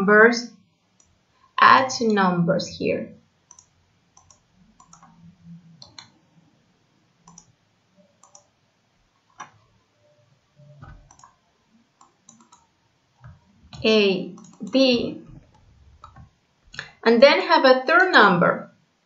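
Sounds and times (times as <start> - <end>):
computer mouse clicking: 3.5 - 6.2, 7.2 - 7.6, 8.2 - 8.5, 9.3 - 9.6, 10.7 - 11.4, 12.0 - 16.9.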